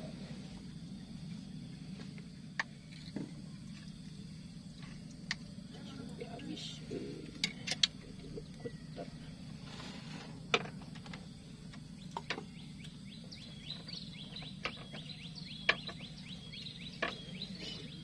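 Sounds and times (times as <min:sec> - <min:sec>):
low hum: 0:00.0 - 0:18.0
bird chirping: 0:07.9 - 0:09.5, 0:11.8 - 0:18.0.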